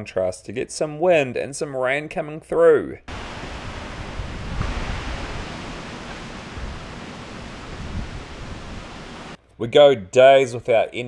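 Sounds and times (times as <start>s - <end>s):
storm wind rushing through trees: 3.1s - 9.4s
wind buffeting microphone: 3.1s - 9.4s.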